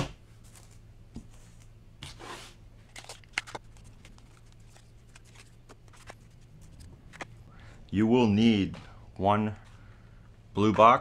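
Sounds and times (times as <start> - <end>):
faint low hum: 0.0 - 11.0
playing cards rustling: 0.4 - 7.5.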